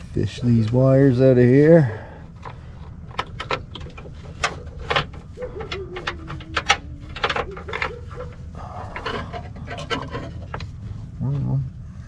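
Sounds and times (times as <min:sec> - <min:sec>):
wiring and plastic parts rattling: 0:02.2 - 0:10.9.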